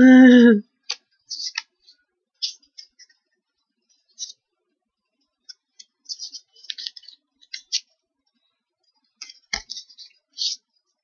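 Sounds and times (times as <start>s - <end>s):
cards clicking and rustling: 0.8s - 1.8s, 5.5s - 8.0s, 9.2s - 10.6s.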